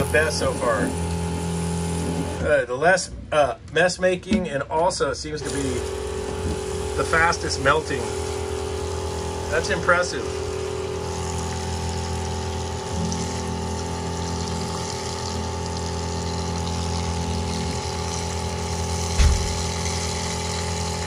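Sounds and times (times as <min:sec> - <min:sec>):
steady machine hum: 0:00.0 - 0:21.0
water spraying from hose nozzle: 0:05.4 - 0:21.0
loud thump: 0:19.1 - 0:19.6.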